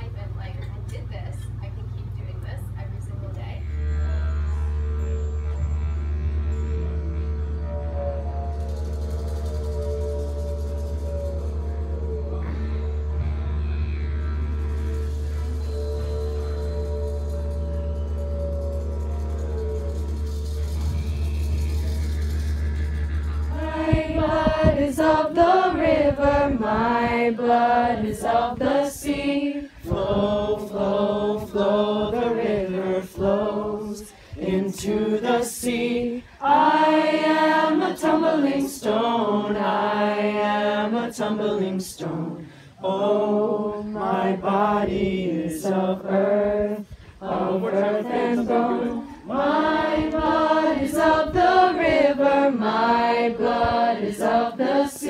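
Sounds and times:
group chanting: 23.5 - 55.0.

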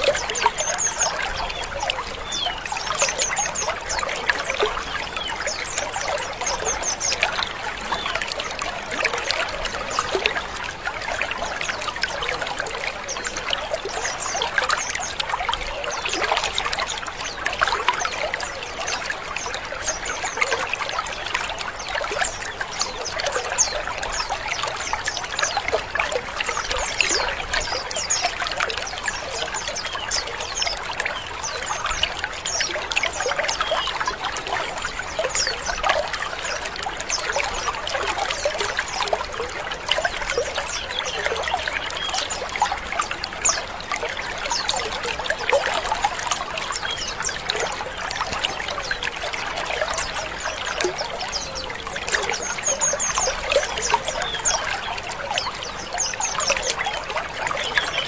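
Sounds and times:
chorus of bird chirps: 0.0 - 58.0.

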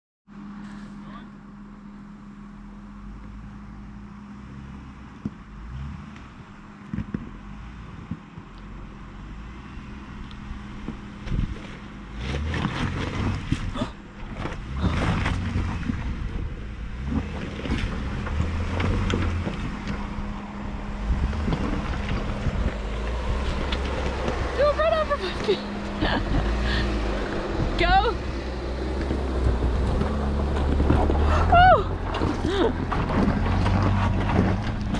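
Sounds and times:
car engine humming: 0.3 - 34.9
tyres crunching over loose rock: 10.8 - 26.5, 27.1 - 34.9
stones cracking and knocking: 32.0 - 34.9.

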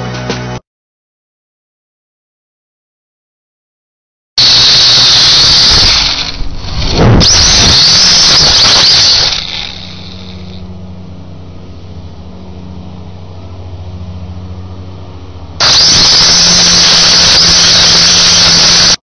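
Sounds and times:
quadcopter motors whining: 4.4 - 10.8, 15.6 - 19.0.

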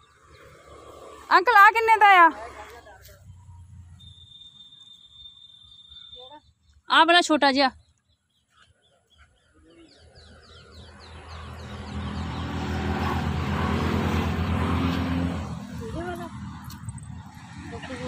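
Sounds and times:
vehicle engine driving past: 0.0 - 1.6, 10.0 - 18.0
bird chirping: 3.4 - 12.8.

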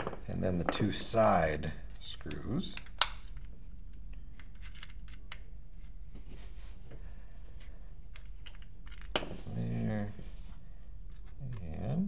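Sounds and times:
low steady hum: 0.0 - 12.0
hex key clicking and scraping: 4.4 - 5.4.

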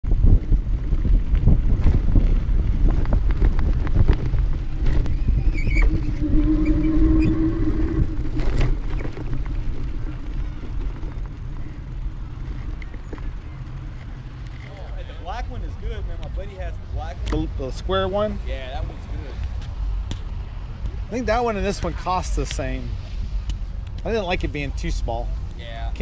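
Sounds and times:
wind buffeting microphone: 0.0 - 14.4
bicycle tyre rumble: 0.0 - 26.0
steady squealing tone: 4.7 - 15.8.

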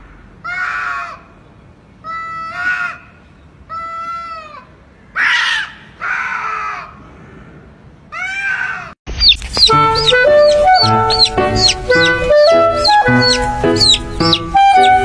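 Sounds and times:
loud music: 9.7 - 15.0.

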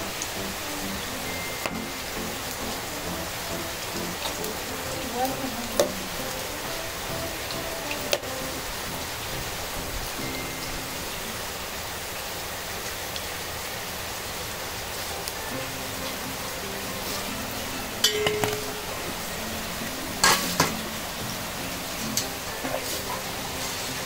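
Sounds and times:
breads frying in hot oil: 0.0 - 24.0
metal utensil clinking: 18.0 - 19.1, 20.2 - 20.8.

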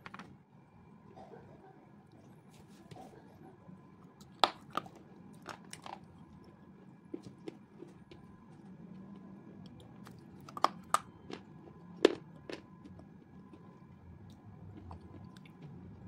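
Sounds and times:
person chewing food: 4.2 - 16.0.

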